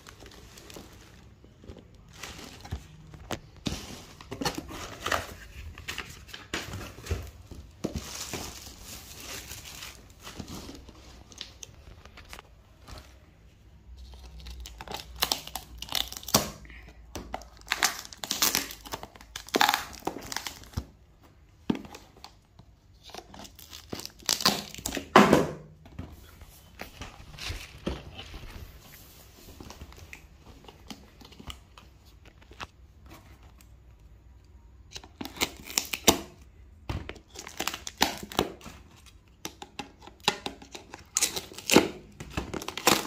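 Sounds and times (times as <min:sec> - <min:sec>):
plastic bags crinkling and tearing: 0:00.0 - 0:13.2, 0:14.0 - 0:21.0, 0:23.0 - 0:25.2, 0:34.9 - 0:36.4, 0:37.2 - 0:43.0.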